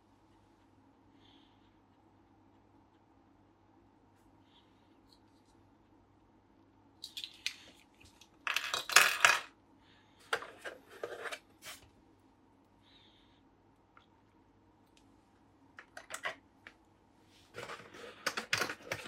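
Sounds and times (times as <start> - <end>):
plastic pieces clicking and clattering: 7.0 - 9.5, 15.8 - 16.4, 17.6 - 19.0.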